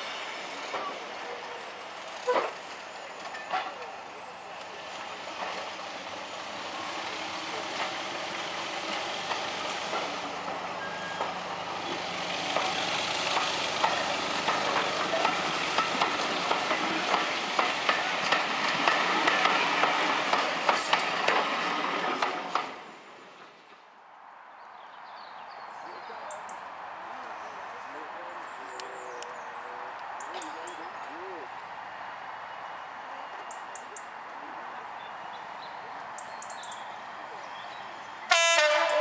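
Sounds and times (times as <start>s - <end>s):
train wheels rumbling on rails: 0.0s - 23.9s
wheels clicking over rail joints: 8.8s - 22.8s.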